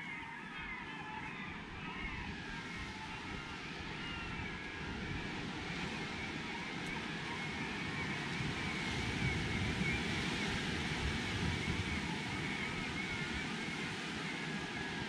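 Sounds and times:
wind buffeting microphone: 0:01.4 - 0:15.0.

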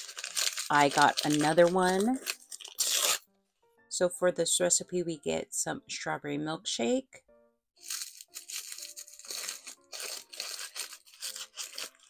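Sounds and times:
paper wrapper tearing and crackling: 0:00.0 - 0:03.3, 0:07.8 - 0:12.0
soft background music: 0:00.0 - 0:12.0.

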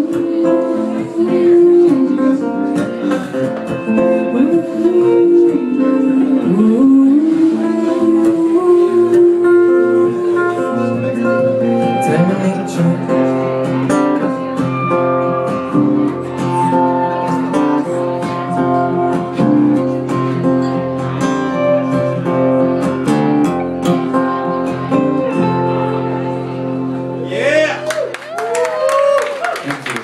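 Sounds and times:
acoustic guitar strummed: 0:00.0 - 0:27.8
second guitar playing: 0:00.0 - 0:29.2.

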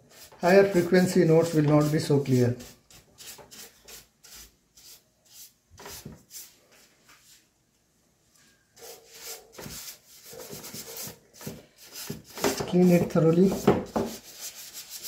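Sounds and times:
paintbrush scrubbing plastic: 0:00.0 - 0:06.6, 0:08.8 - 0:15.0.

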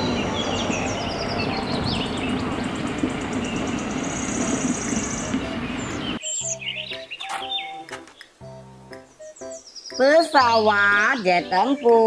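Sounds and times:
truck diesel engine rumbling: 0:00.0 - 0:06.2
high chirps: 0:00.9 - 0:12.0.

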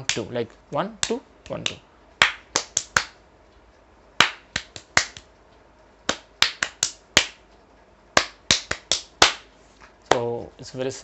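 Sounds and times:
sharp hand claps: 0:01.0 - 0:03.2, 0:04.2 - 0:05.3, 0:06.1 - 0:07.4, 0:08.2 - 0:09.5, 0:10.1 - 0:10.3.

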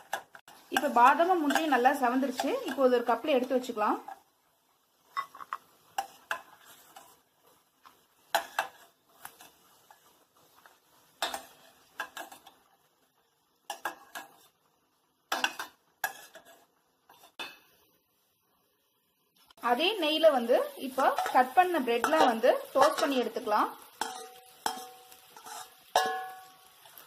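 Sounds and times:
spoon clinking against steel pan: 0:21.2 - 0:23.3, 0:24.0 - 0:27.0.

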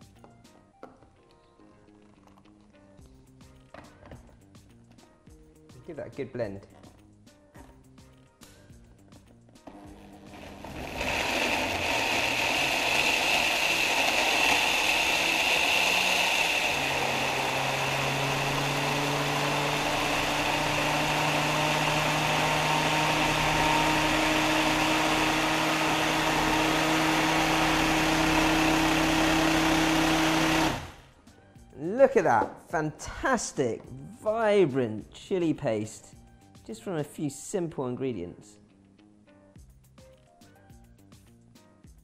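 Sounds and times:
blender motor running: 0:09.6 - 0:31.1.

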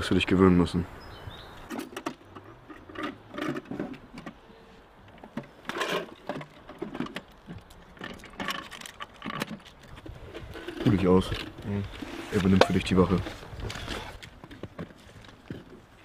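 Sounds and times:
machine gun metallic clicks and rattles: 0:05.0 - 0:11.6.

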